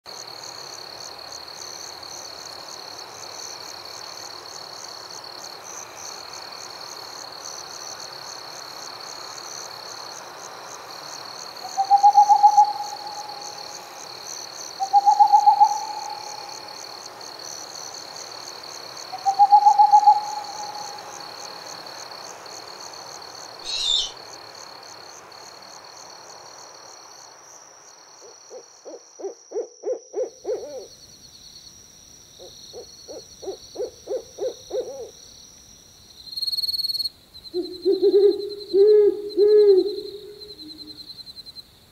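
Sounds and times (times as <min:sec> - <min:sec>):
owl hooting: 0:11.8 - 0:13.6, 0:14.8 - 0:16.5, 0:19.2 - 0:21.0, 0:23.6 - 0:24.2, 0:28.2 - 0:30.9, 0:32.4 - 0:35.1, 0:37.6 - 0:40.9.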